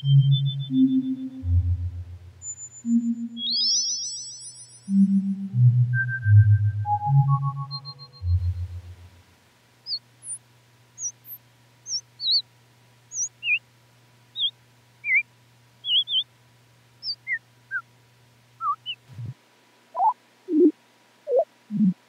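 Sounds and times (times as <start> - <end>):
synthesized bird-like chirps: 0.0 - 1.7, 2.4 - 8.8, 9.9 - 10.4, 11.0 - 12.4, 13.1 - 13.6, 15.8 - 16.2, 17.0 - 17.8, 18.6 - 19.3, 20.0 - 20.7, 21.3 - 22.0
faint low hum: 0.0 - 3.5, 4.8 - 22.0.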